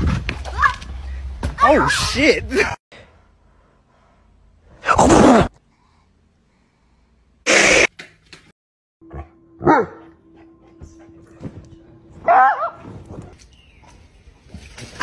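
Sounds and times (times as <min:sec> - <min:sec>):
dog barking: 0:09.6 - 0:10.0, 0:12.2 - 0:12.8.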